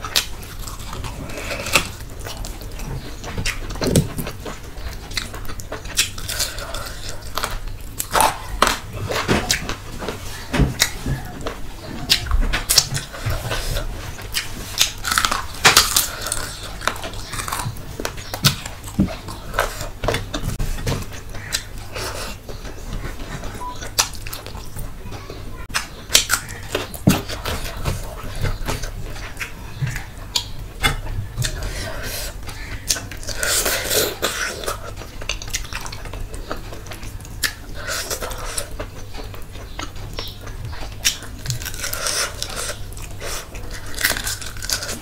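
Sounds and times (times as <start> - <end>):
wet chewing and lip smacking: 0.0 - 9.8, 10.7 - 45.0.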